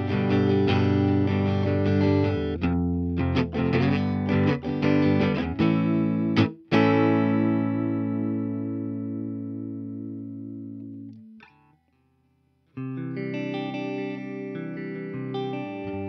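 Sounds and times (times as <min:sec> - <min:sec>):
overdriven electric guitar chords: 0:00.0 - 0:11.8, 0:12.7 - 0:16.0.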